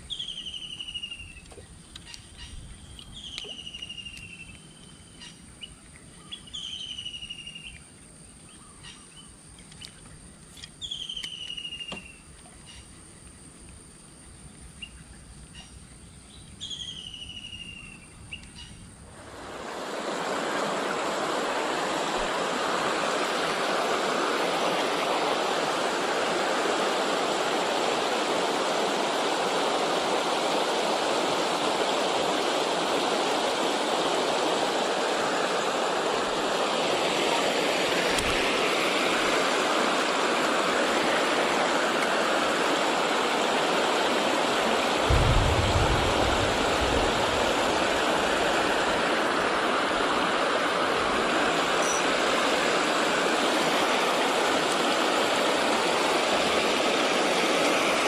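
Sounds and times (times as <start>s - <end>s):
bird calls: 0.0s - 7.8s, 8.5s - 13.0s
water rushing over a weir: 19.1s - 58.0s.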